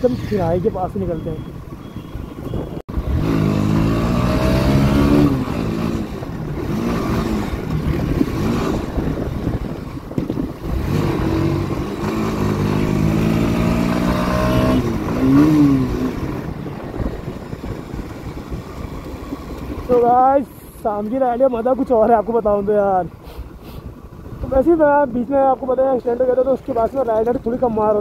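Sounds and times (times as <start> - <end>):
motorcycle engine accelerating: 2.9 - 20.2.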